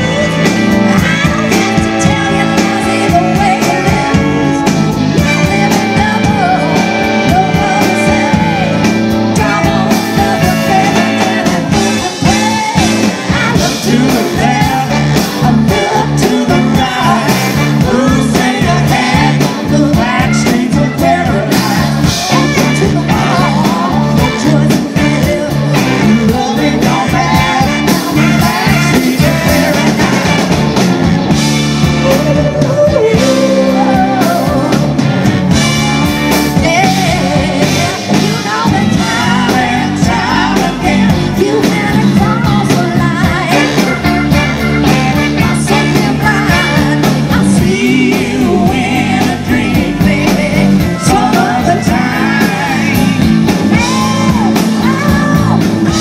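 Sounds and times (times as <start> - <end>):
live rock band playing: 0.0 - 56.0
woman singing lead: 0.0 - 56.0.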